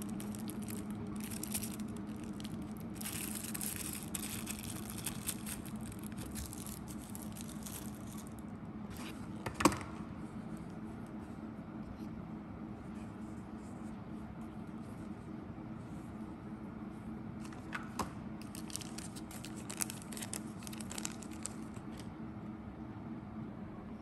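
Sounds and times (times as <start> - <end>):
plastic wrapper crinkling: 0.0 - 8.5, 18.4 - 22.1
steady low hum: 0.0 - 24.0.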